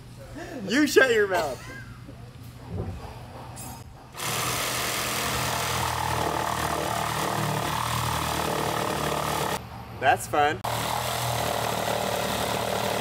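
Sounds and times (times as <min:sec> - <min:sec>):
jigsaw cutting wood: 0:04.2 - 0:09.6, 0:10.7 - 0:13.0.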